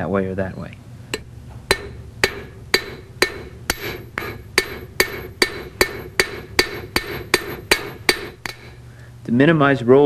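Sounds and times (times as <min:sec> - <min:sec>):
hammer striking copper rod: 0:01.1 - 0:08.8.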